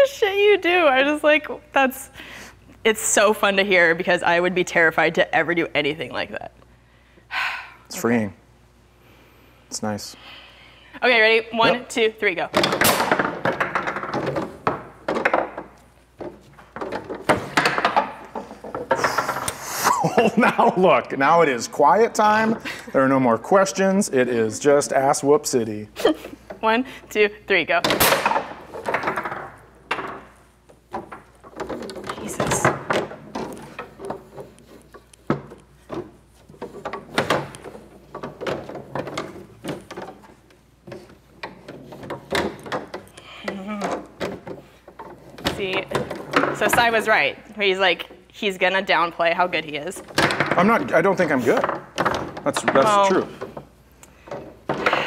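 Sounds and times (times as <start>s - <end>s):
foosball ball and rods clacking: 11.6s - 19.6s, 27.7s - 47.3s, 49.8s - 55.0s
foosball ball knocks: 12.6s - 19.6s, 27.8s - 34.5s, 50.1s - 50.7s.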